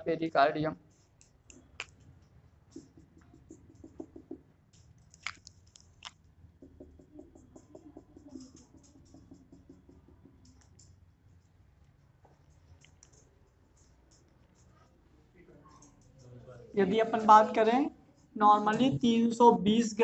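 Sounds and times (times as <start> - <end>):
marker squeaking on whiteboard: 2.7 - 4.4, 6.6 - 10.8.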